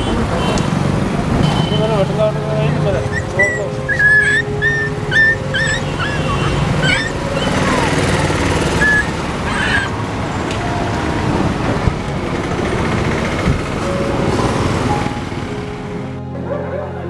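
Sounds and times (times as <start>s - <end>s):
street traffic noise: 0.0s - 17.0s
puppy crying: 2.7s - 10.1s.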